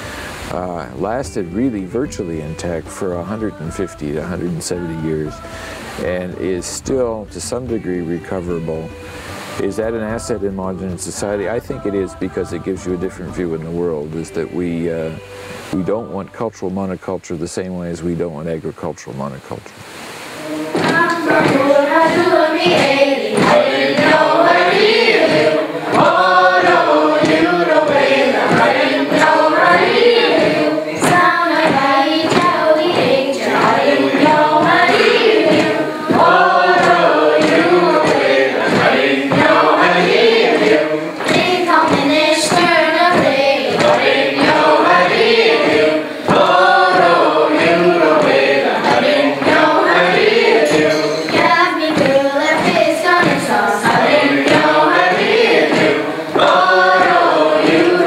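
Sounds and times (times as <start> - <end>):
women and girls singing: 0.0 - 16.5, 20.1 - 58.0
cloth beating on table: 20.7 - 58.0.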